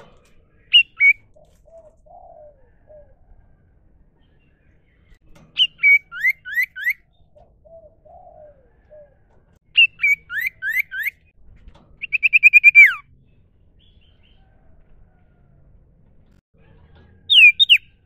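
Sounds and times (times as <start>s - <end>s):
bird whistling and trilling: 0.7s - 3.1s, 5.6s - 11.3s, 12.0s - 13.1s, 17.3s - 18.0s.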